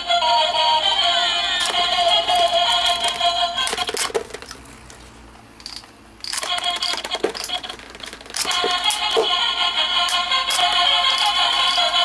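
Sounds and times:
plastic toy clicks and knocks: 1.6s - 4.6s, 5.6s - 9.4s, 10.0s - 12.0s
toy electronic tune: 6.2s - 7.8s, 8.4s - 12.0s.

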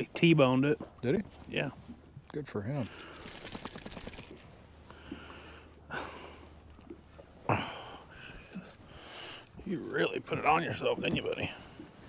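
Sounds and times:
light rattling clicks: 2.8s - 4.4s.

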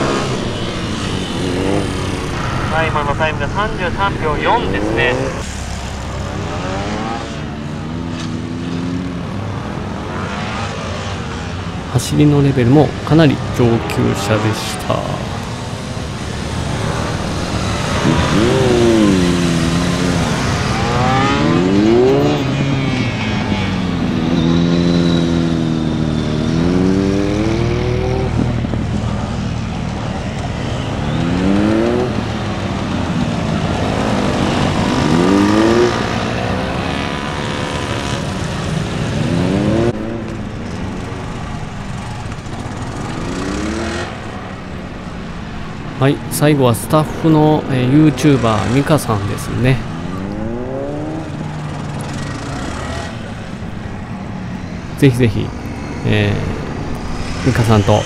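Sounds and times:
motorcycle engine revving: 0.0s - 11.9s, 12.8s - 46.0s, 47.5s - 58.0s.

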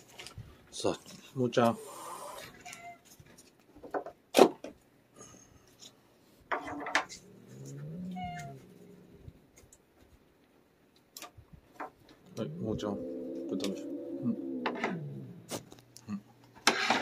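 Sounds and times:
cat growling call: 1.6s - 3.1s, 7.0s - 9.5s, 12.2s - 16.2s.

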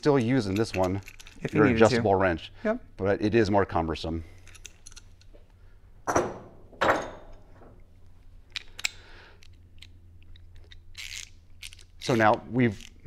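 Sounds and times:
tools rattling: 0.1s - 1.6s, 4.3s - 5.4s, 6.0s - 9.0s
metal tools clinking: 0.1s - 2.0s, 4.3s - 5.3s, 6.1s - 7.8s.

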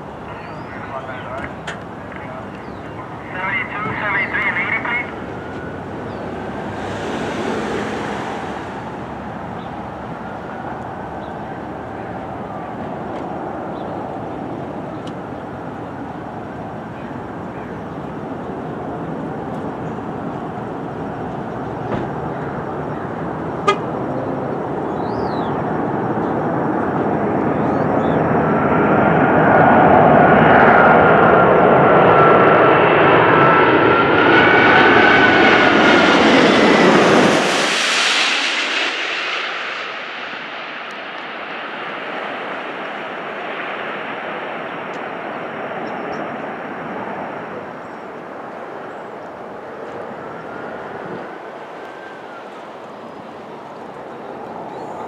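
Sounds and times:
jet airliner passing overhead: 0.0s - 55.0s.

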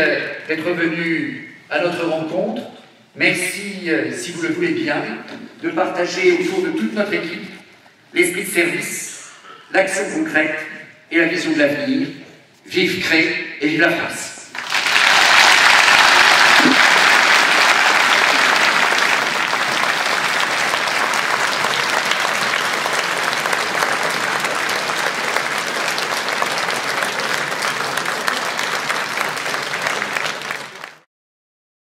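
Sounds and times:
large audience applauding: 14.5s - 31.1s.

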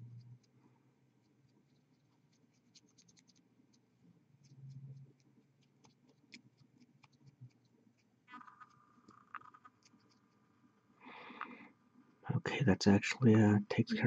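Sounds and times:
paintbrush clicks and scratches: 0.0s - 10.6s.

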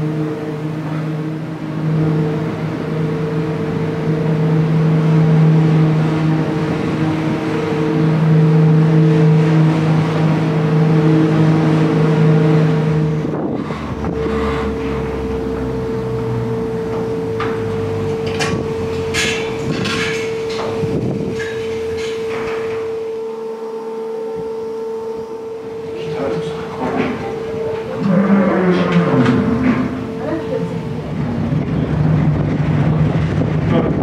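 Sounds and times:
ropeway machinery humming: 0.0s - 34.0s.

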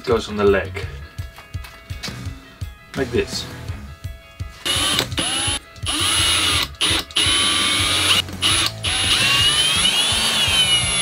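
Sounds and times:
cordless drill whine: 4.7s - 11.0s.

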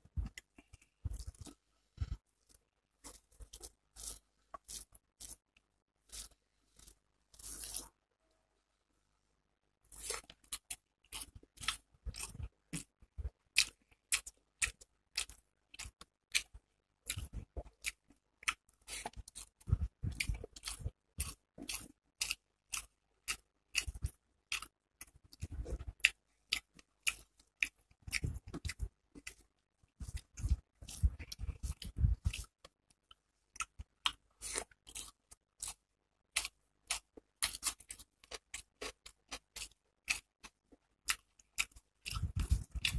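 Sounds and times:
wet chewing and mouth smacks: 9.9s - 42.9s.

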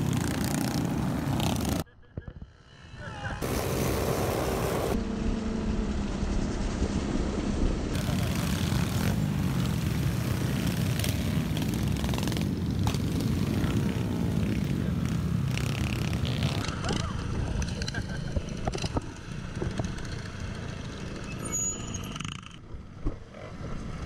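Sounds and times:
mini bike engine revving: 3.4s - 5.0s, 8.0s - 22.6s.

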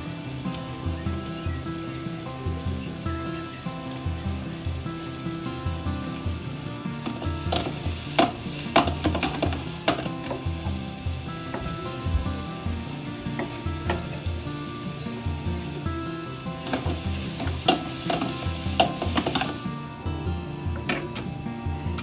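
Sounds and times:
mushrooms sizzling in a pan: 0.0s - 22.0s
scraping and clattering while stirring: 7.0s - 10.8s, 16.6s - 19.6s.

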